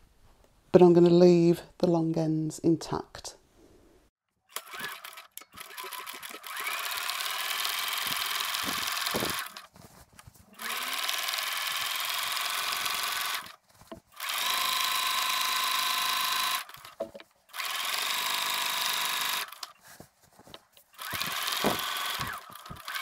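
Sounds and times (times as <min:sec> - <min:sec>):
sewing machine stitching: 0:04.5 - 0:09.7, 0:10.6 - 0:13.6, 0:14.2 - 0:17.0, 0:17.6 - 0:19.7, 0:21.0 - 0:23.0.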